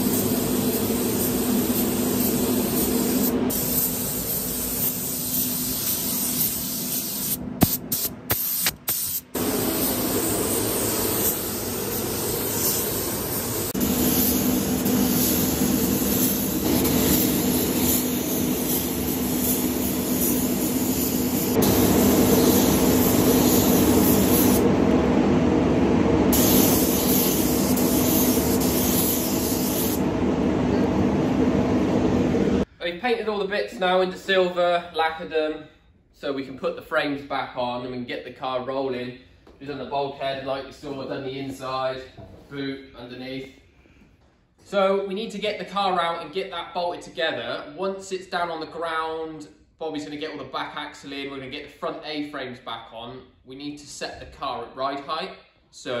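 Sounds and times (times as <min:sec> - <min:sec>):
paint spray gun hissing: 0:00.0 - 0:24.7, 0:26.3 - 0:30.0
spray booth air system hum: 0:00.0 - 0:32.7.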